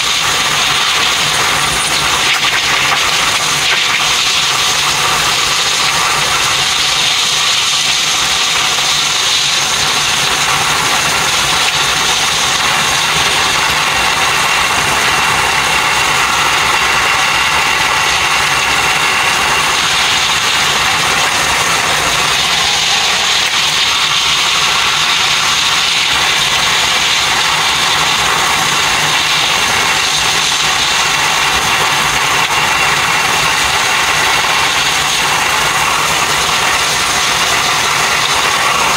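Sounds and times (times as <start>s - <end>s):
train wheels rushing on rails: 0.0s - 38.9s.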